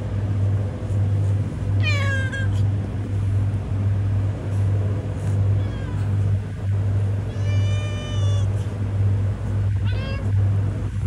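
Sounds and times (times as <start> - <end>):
loud low hum: 0.0 - 11.0
cat meowing: 1.8 - 2.6, 5.6 - 6.1, 7.2 - 8.7, 9.8 - 10.4.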